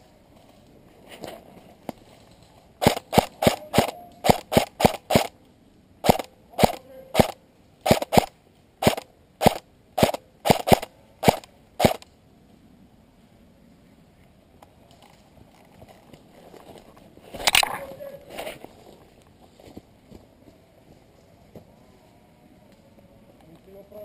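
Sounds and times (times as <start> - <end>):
airsoft rifle shots: 2.8 - 5.4, 6.0 - 12.0.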